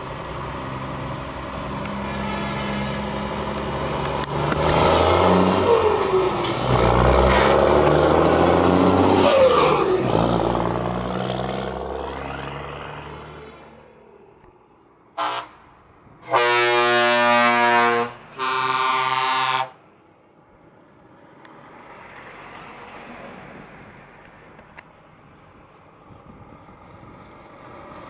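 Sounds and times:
truck engine passing: 0.0s - 19.8s
truck tyres on road: 0.0s - 28.0s
truck air horn blasts: 1.9s - 3.2s, 15.2s - 19.8s.

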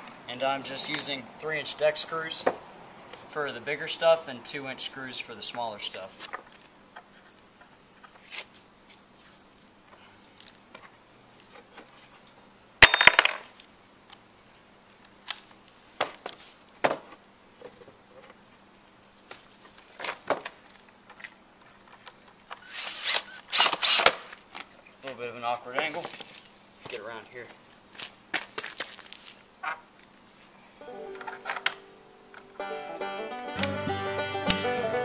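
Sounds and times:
lumber and drill being handled: 19.3s - 30.1s, 31.2s - 32.5s.

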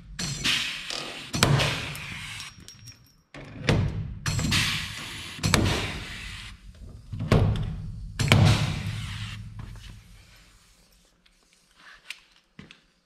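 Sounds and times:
short pneumatic hiss: 4.5s - 6.6s, 8.2s - 9.6s.

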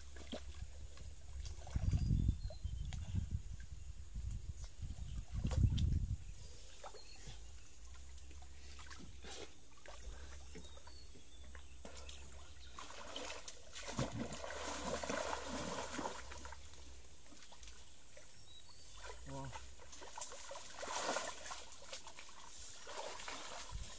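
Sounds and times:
water sloshing and trickling: 0.0s - 23.9s
water splashing: 11.8s - 23.9s.

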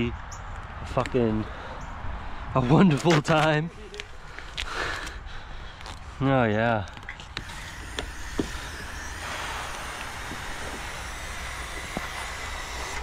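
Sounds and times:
pressure washer humming: 7.4s - 13.0s.

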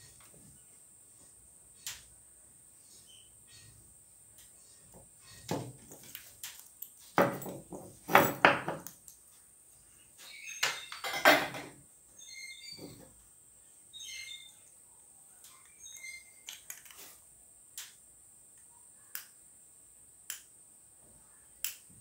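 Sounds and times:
bird chirping faintly: 2.8s - 3.9s, 13.6s - 16.7s
knocks and rattles on workbench: 5.4s - 6.1s, 7.2s - 8.9s, 10.7s - 11.8s.

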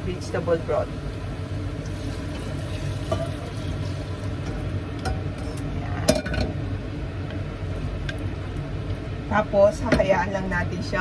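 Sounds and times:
kitchen exhaust fan humming: 0.0s - 11.0s
saucepan clanking on stovetop: 2.7s - 3.6s.

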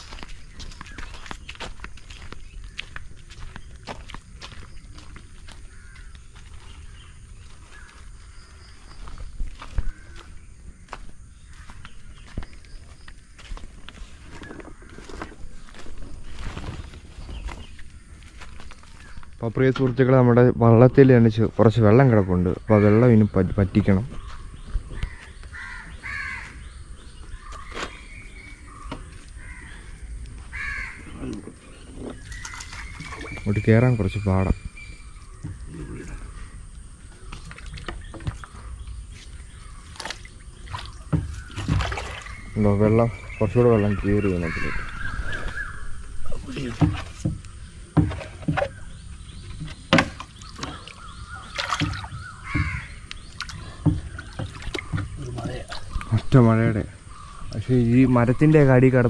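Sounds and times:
harsh bird calls: 14.0s - 59.0s
water scooped and splashing: 39.8s - 42.6s, 50.4s - 56.1s
knocks on wooden canoe: 46.7s - 48.8s, 51.6s - 53.0s, 53.8s - 55.7s.

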